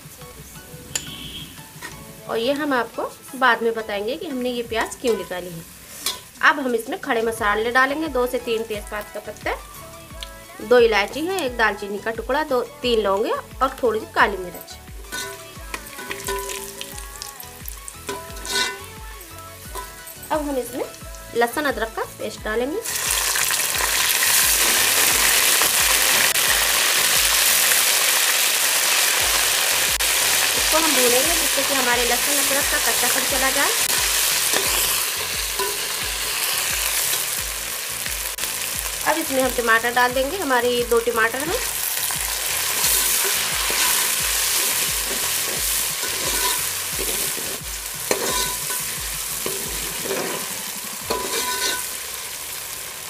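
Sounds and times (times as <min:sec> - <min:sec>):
paste sizzling in hot oil: 0:01.0 - 0:53.0
steel spoon stirring: 0:06.0 - 0:06.4, 0:14.6 - 0:20.4, 0:31.4 - 0:37.4, 0:42.0 - 0:52.0
spoon clinking on pot: 0:15.1 - 0:16.8, 0:18.1 - 0:19.0, 0:35.6 - 0:35.9, 0:46.0 - 0:47.2, 0:48.1 - 0:50.4, 0:51.0 - 0:51.9.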